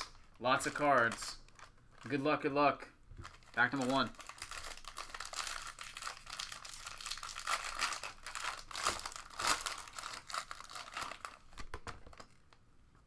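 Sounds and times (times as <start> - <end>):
foil wrapper crinkling: 0.0 - 2.3, 3.2 - 12.4
foil ripping: 3.6 - 11.5.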